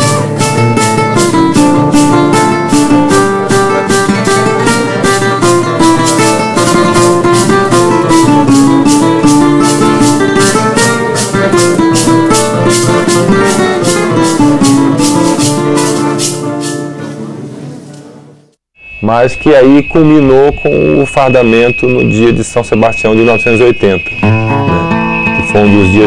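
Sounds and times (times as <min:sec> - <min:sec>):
maraca shaking: 0:00.0 - 0:17.2
guitar melody: 0:00.0 - 0:18.5, 0:24.0 - 0:26.0.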